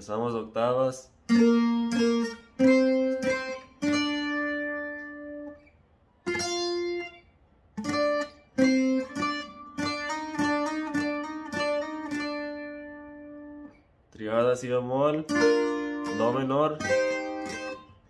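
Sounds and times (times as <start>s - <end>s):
twelve-string acoustic guitar melody: 1.2s - 14.0s, 14.8s - 18.0s.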